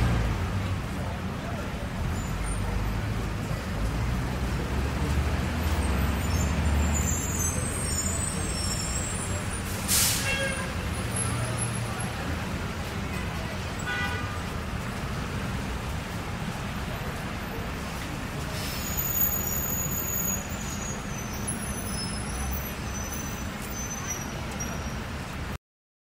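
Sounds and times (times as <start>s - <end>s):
pedestrian voices: 0.0s - 25.6s
traffic rumble: 0.0s - 25.6s
car horn toot: 10.2s - 10.8s, 13.8s - 14.4s.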